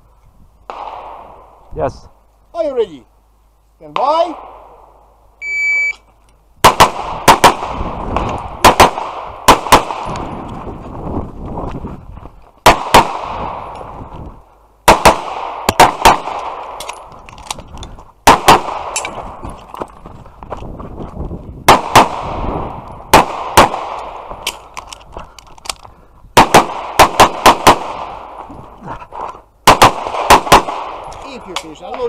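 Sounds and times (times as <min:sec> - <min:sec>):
shot timer beep: 0:05.4 - 0:06.0
pistol shots echoing: 0:06.6 - 0:10.3, 0:12.6 - 0:13.7, 0:14.8 - 0:17.1, 0:18.2 - 0:19.2, 0:21.7 - 0:24.6, 0:26.4 - 0:28.4, 0:29.6 - 0:31.1.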